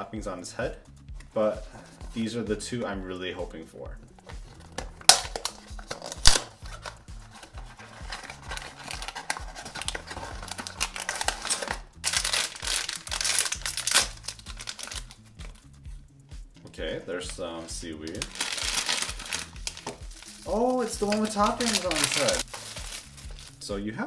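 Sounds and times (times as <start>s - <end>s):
cardboard flap snapping: 4.7s - 15.1s, 18.1s - 23.5s
foil bag crinkling and tearing: 5.1s - 15.2s, 18.1s - 23.6s.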